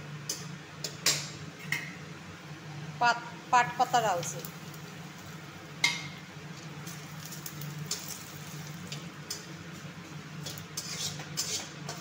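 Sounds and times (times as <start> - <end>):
leaves and chilli frying in oil: 3.8 - 12.0
spatula scraping a steel pan: 10.4 - 12.0.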